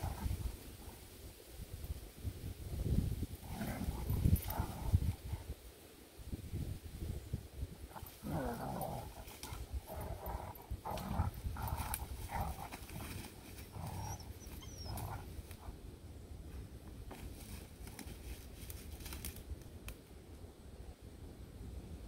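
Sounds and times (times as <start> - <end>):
paws crunching dry leaves: 8.0 - 15.7.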